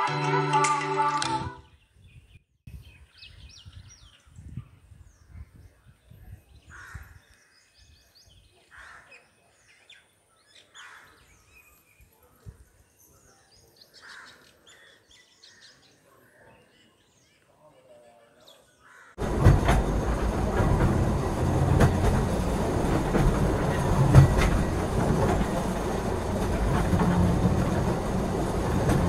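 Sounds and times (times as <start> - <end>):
low rumble: 19.2 - 29.0.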